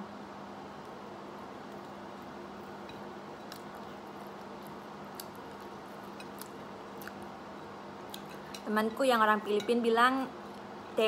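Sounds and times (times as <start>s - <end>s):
eating clicks and smacks: 2.9s - 7.3s.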